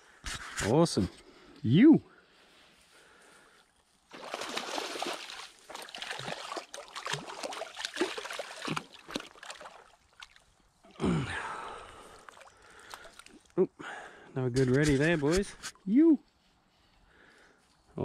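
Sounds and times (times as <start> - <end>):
fish splashing in water: 4.1 - 10.4.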